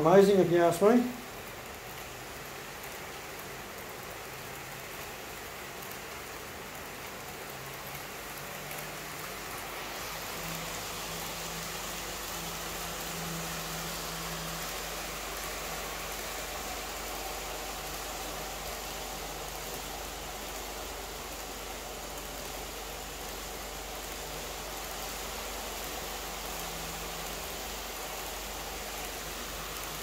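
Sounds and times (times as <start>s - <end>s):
model train rolling hiss: 0.0s - 30.0s.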